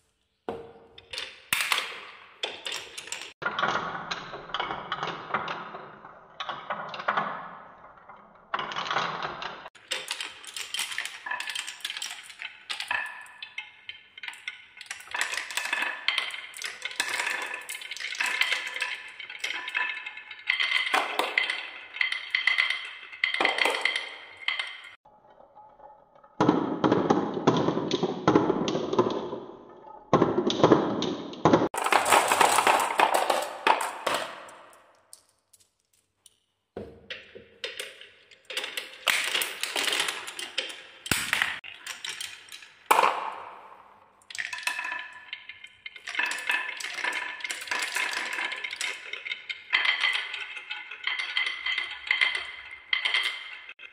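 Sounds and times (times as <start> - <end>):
marbles clattering on wooden tracks: 0.2 - 53.9.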